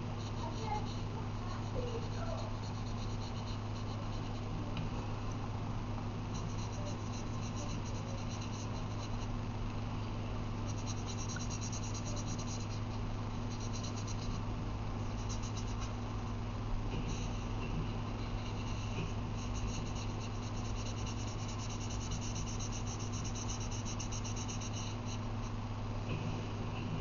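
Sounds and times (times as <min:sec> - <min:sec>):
low electrical hum: 0:00.0 - 0:27.0
marker scratching on paper: 0:00.2 - 0:04.5, 0:06.3 - 0:09.3, 0:10.7 - 0:14.4, 0:15.0 - 0:16.0, 0:17.0 - 0:25.2.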